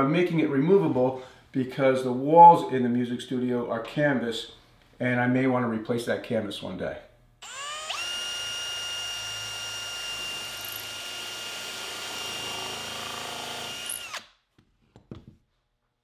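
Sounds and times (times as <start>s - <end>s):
cordless drill boring into wood: 7.4s - 14.3s.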